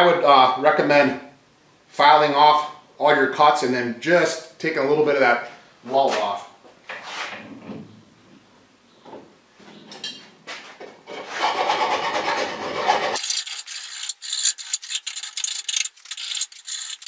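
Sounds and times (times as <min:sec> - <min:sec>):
hand file rasping on pipe: 0:11.1 - 0:17.0.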